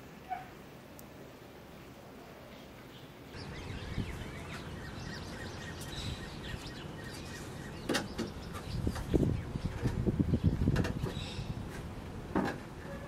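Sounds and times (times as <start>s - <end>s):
outdoor background noise: 0.0s - 13.0s
birds chirping: 2.3s - 12.0s.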